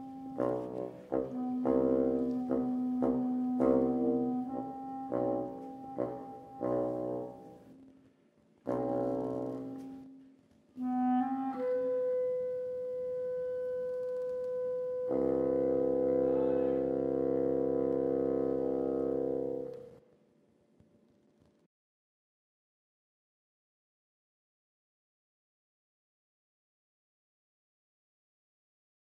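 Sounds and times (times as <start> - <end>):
bassoon low note: 0.0 - 7.6, 10.8 - 19.8
clarinet: 0.0 - 7.9, 8.6 - 20.0.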